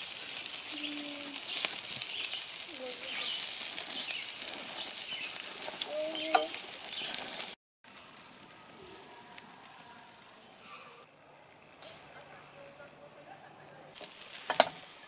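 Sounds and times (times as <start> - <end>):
meat sizzling on a grill: 0.0 - 10.8, 14.0 - 15.0
forest ambience: 0.0 - 13.2.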